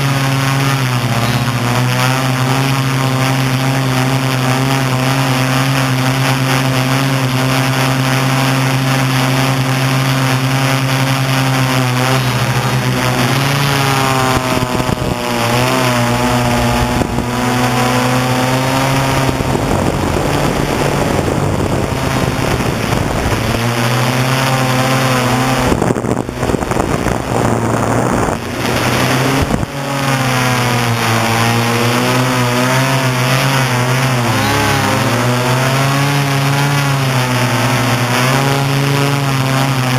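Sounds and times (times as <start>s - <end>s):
drone motors humming: 0.0s - 39.9s
rushing noise: 10.8s - 38.1s.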